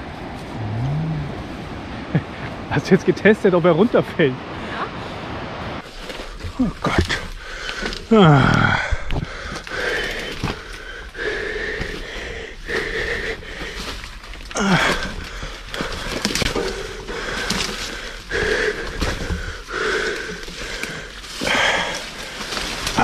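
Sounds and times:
person breathing raspily: 7.0 - 23.0.

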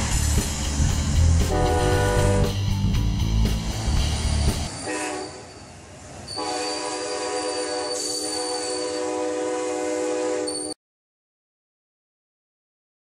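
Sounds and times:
train cars rolling past: 0.0 - 10.8
train air horn: 1.4 - 2.6, 4.7 - 5.6, 6.3 - 10.8.

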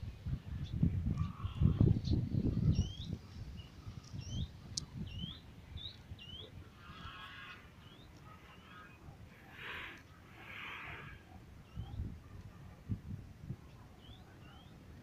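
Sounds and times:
wind buffeting microphone: 0.0 - 7.0, 11.1 - 15.0.

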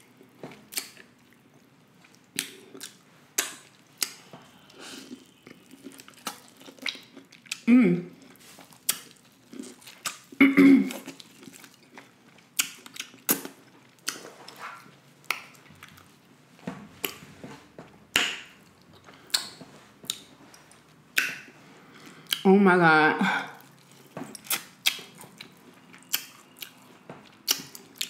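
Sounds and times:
wet chewing: 0.5 - 16.2, 23.6 - 28.0
person humming: 7.7 - 8.1.

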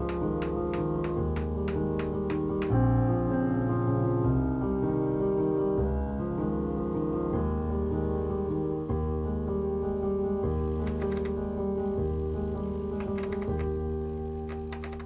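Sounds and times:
ticking beat: 0.0 - 2.9, 10.9 - 11.4, 13.0 - 13.8
instrumental background music: 0.0 - 15.0.

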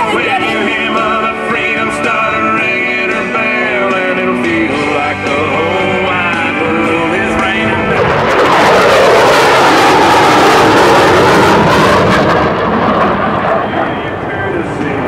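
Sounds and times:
jet engines roaring: 0.0 - 15.0
rock song with singing: 0.0 - 15.0.

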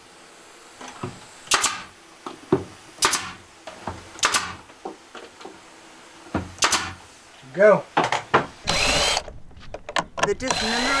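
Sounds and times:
nail gun firing: 1.5 - 1.9, 3.0 - 3.4, 4.2 - 4.6, 6.6 - 7.0, 8.6 - 9.3, 10.4 - 11.0.

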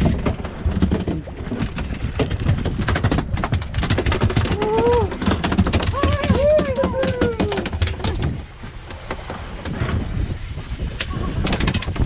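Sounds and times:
sudden knocks: 0.0 - 8.4
water slapping against boat: 0.0 - 12.0
wind buffeting microphone: 0.0 - 12.0.

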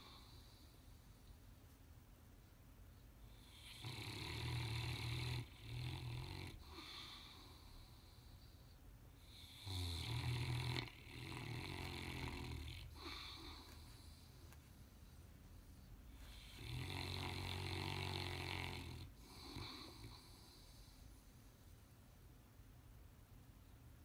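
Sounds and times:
dog snoring: 3.3 - 8.6, 9.2 - 14.3, 16.2 - 21.1.

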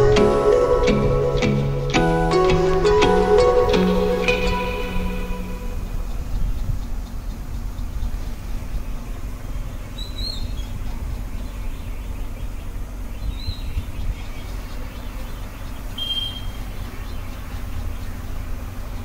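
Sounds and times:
high bird chirps: 9.9 - 10.8, 11.4 - 18.3.

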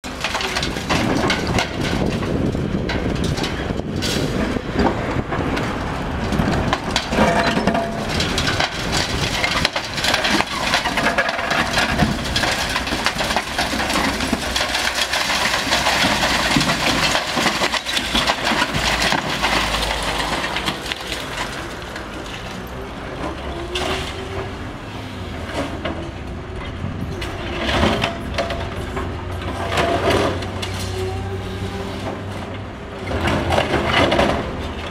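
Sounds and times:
rubble breaking and falling: 0.0 - 4.9, 6.4 - 22.2
concrete crunching and cracking: 0.0 - 24.5
excavator engine and hydraulics: 0.1 - 34.9.

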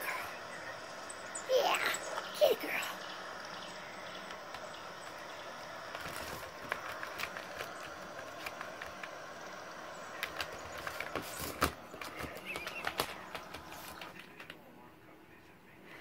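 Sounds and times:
steady hiss: 0.0 - 14.4
cat paws tapping tablet screen: 3.3 - 14.6.

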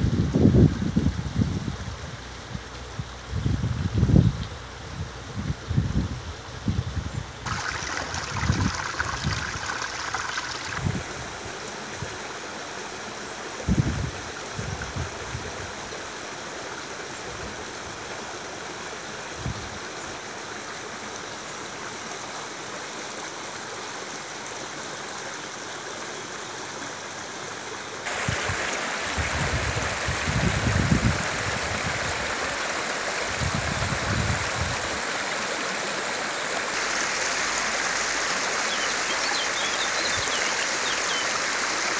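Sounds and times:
wind gusts rumbling on microphone: 0.0 - 12.2, 13.6 - 15.9, 28.1 - 35.1
shallow stream babbling over stones: 7.4 - 13.6, 20.0 - 41.9.

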